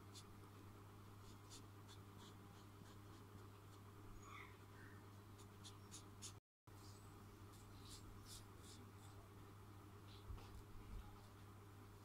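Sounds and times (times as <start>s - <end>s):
low steady hum: 0.0s - 12.0s
marker scratching on paper: 1.2s - 3.8s, 5.4s - 6.4s, 7.5s - 9.2s.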